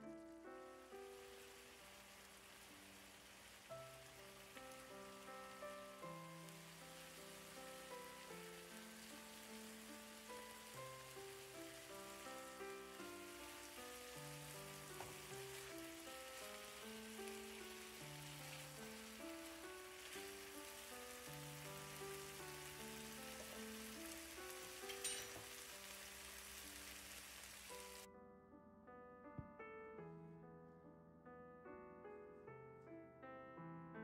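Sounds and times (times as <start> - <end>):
soft piano background music: 0.0 - 34.0
chicken wings sizzling in a pan: 0.4 - 28.1.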